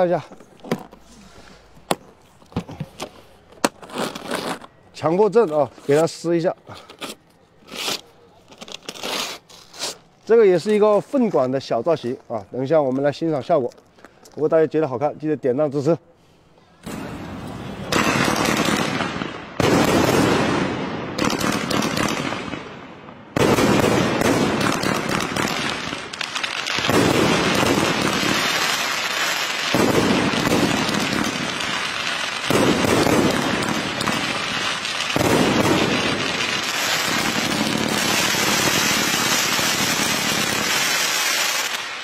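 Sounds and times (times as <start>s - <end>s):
fireworks launching and bursting: 16.8s - 42.0s.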